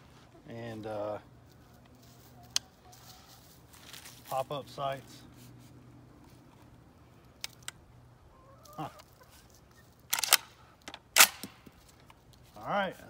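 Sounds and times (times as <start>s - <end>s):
chickens clucking: 0.0s - 3.7s, 8.2s - 10.1s
shotgun handling clicks: 7.4s - 7.8s, 10.1s - 12.2s.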